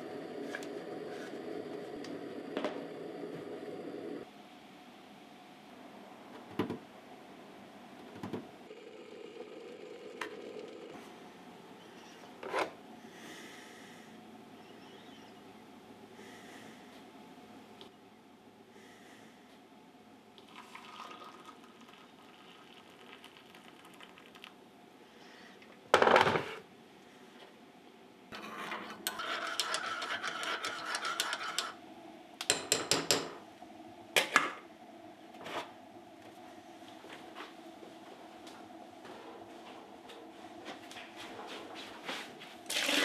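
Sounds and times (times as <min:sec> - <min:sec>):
steady noise: 0:00.0 - 0:04.3.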